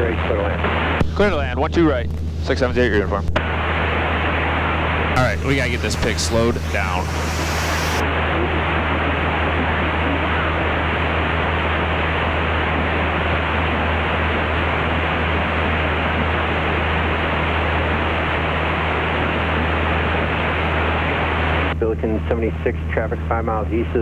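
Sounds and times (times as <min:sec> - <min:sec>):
airplane engine and propeller drone: 0:00.0 - 0:24.0
rushing air: 0:03.4 - 0:08.3.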